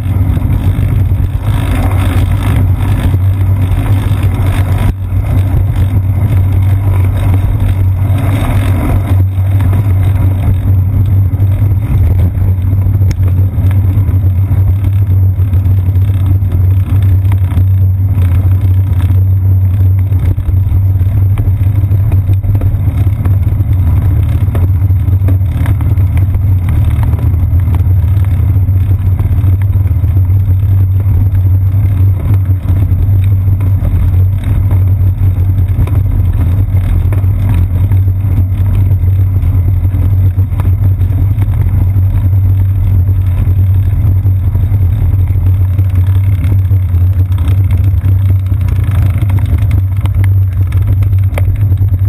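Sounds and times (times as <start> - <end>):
road vibration: 0.0 - 52.0
wind rumble: 0.0 - 52.0.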